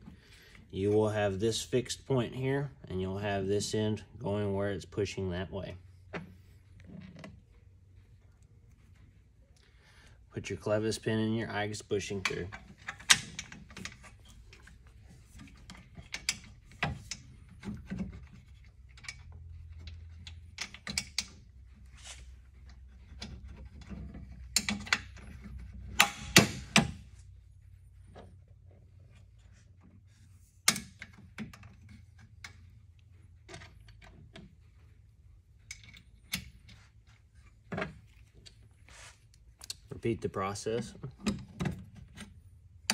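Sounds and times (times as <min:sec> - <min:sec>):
metal clicks and knocks: 0:23.0 - 0:27.0.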